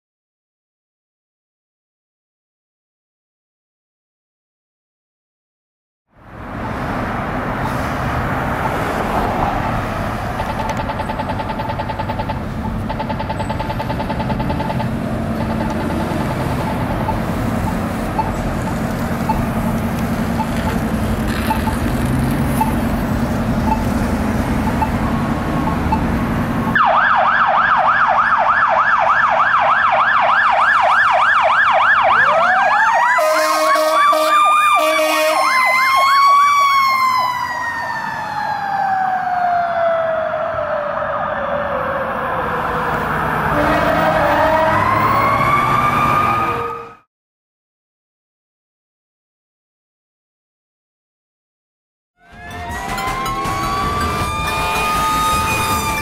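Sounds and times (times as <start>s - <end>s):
fire engine siren: 6.1s - 47.1s, 52.2s - 56.0s
street traffic: 6.1s - 47.1s, 52.2s - 56.0s
horn blasts: 33.2s - 35.5s, 43.5s - 44.7s, 52.2s - 56.0s.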